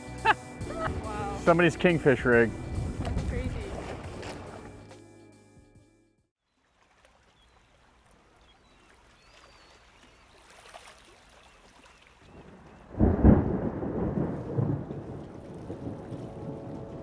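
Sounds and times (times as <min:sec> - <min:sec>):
thunder crack and rumble: 0:12.8 - 0:17.0.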